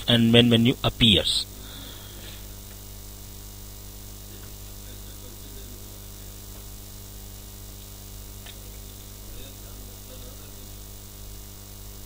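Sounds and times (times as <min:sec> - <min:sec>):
constant hiss: 0:00.0 - 0:12.0
low electrical hum: 0:00.0 - 0:12.0.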